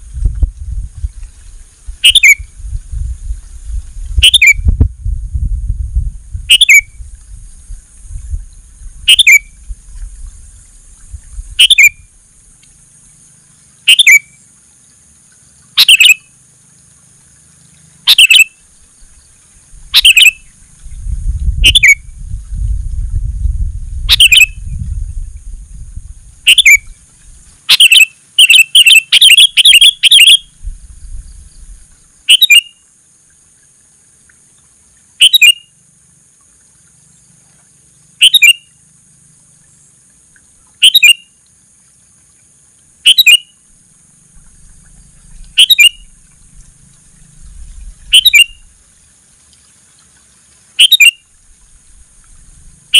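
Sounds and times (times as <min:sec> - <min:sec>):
low rumble: 0:00.0 - 0:12.5, 0:19.8 - 0:27.5
steady high hiss: 0:00.0 - 0:52.9
bird calls dropping in pitch: 0:02.0 - 0:02.5, 0:04.2 - 0:04.6, 0:06.5 - 0:06.9, 0:09.1 - 0:09.5, 0:11.6 - 0:12.0, 0:13.8 - 0:14.3, 0:15.8 - 0:16.3, 0:18.1 - 0:18.5, 0:19.9 - 0:20.5, 0:21.6 - 0:22.0, 0:24.1 - 0:24.6, 0:26.4 - 0:27.0, 0:27.7 - 0:30.5, 0:38.2 - 0:38.6, 0:40.8 - 0:41.2, 0:43.0 - 0:43.5, 0:44.8 - 0:46.1, 0:48.1 - 0:48.7, 0:50.8 - 0:51.2.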